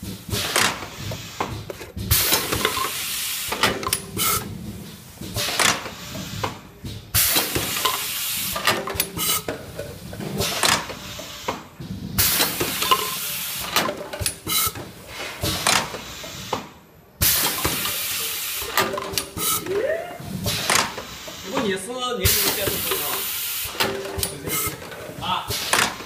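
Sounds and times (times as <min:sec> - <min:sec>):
air hiss bursts: 0:00.0 - 0:26.0
machine metal clicks and knocks: 0:08.6 - 0:09.6, 0:12.4 - 0:14.9, 0:18.7 - 0:19.7.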